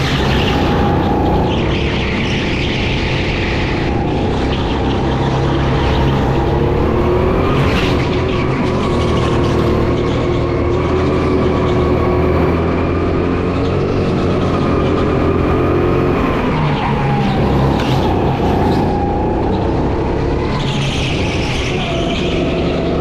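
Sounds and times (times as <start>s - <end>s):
go-kart engine at high revs: 0.0s - 23.0s.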